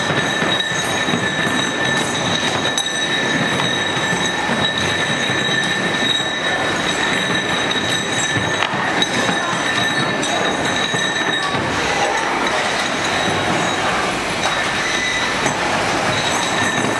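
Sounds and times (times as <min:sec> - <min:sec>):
bolts and nuts clinking: 0:00.0 - 0:16.9
workshop machinery whine: 0:00.0 - 0:16.9.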